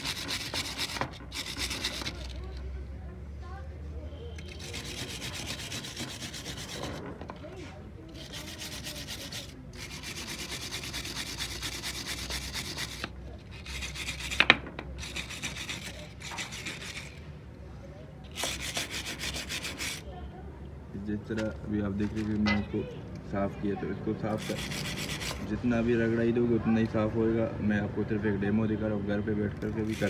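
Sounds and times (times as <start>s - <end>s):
brush scrubbing metal: 0.0s - 2.6s, 4.4s - 17.2s, 18.3s - 20.1s, 24.2s - 25.6s, 29.6s - 30.0s.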